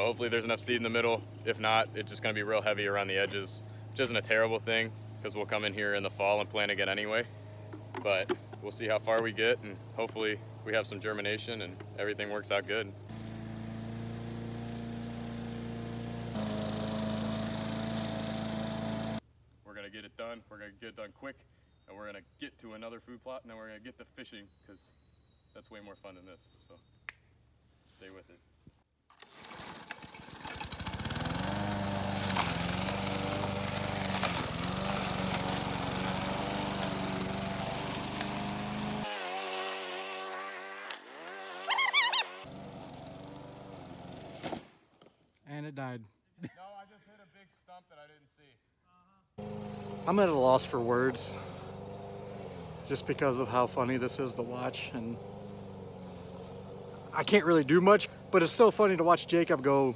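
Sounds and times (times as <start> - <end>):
lawn mower engine cutting grass: 0.0 - 19.2, 29.1 - 44.6, 49.4 - 59.9.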